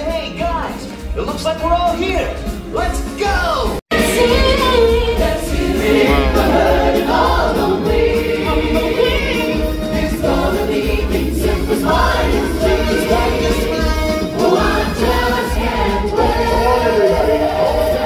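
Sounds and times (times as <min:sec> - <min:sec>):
loud backing music: 0:00.0 - 0:18.0
choir singing: 0:03.9 - 0:18.0.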